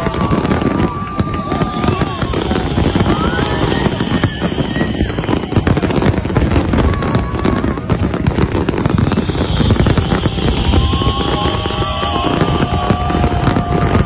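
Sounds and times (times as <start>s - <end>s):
fireworks bangs crackling: 0.0s - 14.0s.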